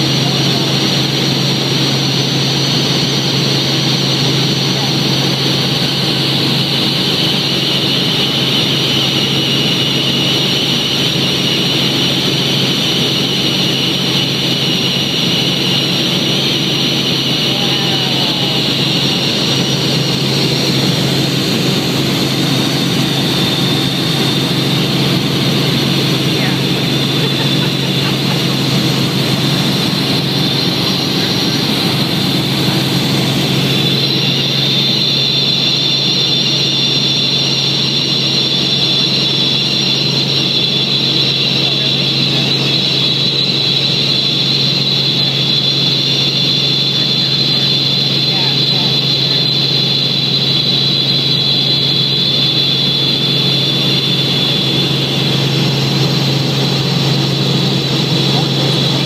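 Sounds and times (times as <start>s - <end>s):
low hum: 0.0s - 38.0s
helicopter engine and rotor drone: 0.0s - 59.0s
high whine: 0.0s - 59.0s.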